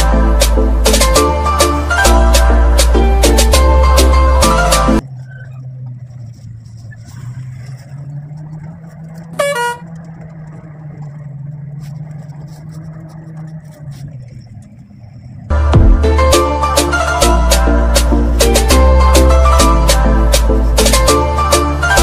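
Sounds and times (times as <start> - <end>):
vehicle engine running: 0.0 - 22.0
horn blast: 9.4 - 10.0.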